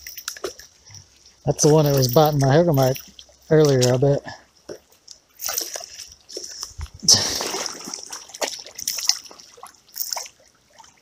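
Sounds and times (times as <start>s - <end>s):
water dripping: 0.0s - 11.0s
fish splashing in water: 5.4s - 11.0s.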